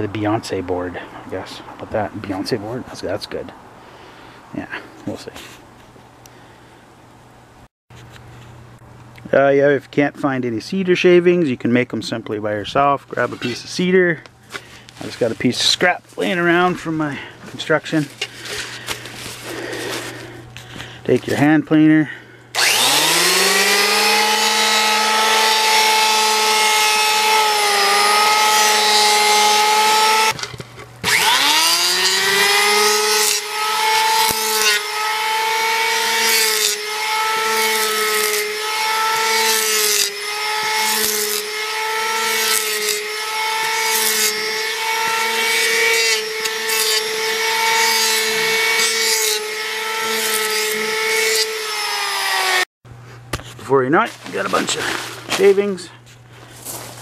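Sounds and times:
electric hand planer shaving wood: 22.6 - 30.4, 31.0 - 52.7.

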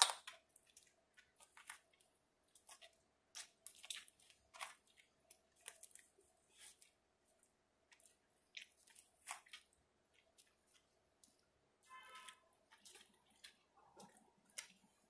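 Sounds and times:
shoes squelching in mashed fruit: 0.0 - 7.1, 7.8 - 15.0.

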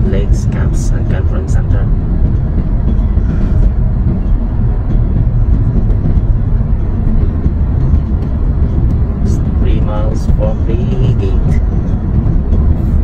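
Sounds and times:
car road and tyre noise: 0.0 - 13.0.

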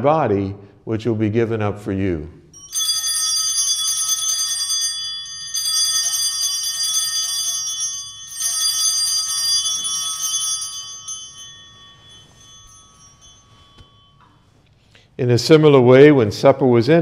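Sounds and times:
altar bells jingling: 2.6 - 15.5.

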